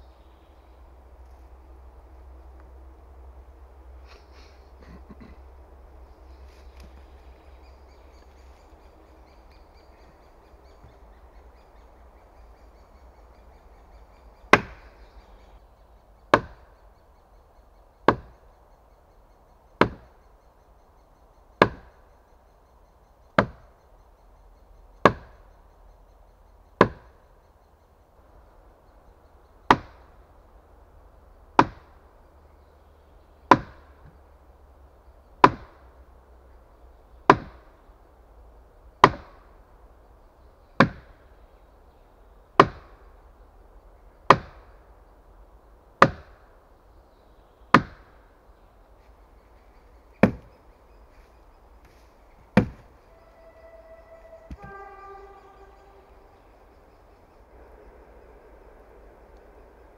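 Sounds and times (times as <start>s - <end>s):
wooden mallet striking wood: 16.3s - 16.6s, 18.1s - 18.3s, 19.8s - 20.0s, 21.6s - 21.9s, 23.4s - 23.6s, 25.0s - 25.3s, 31.6s - 31.9s, 33.5s - 33.8s, 35.4s - 35.7s, 37.3s - 37.6s, 42.6s - 42.9s, 46.0s - 46.3s, 47.7s - 48.0s, 50.2s - 50.5s, 52.5s - 52.8s.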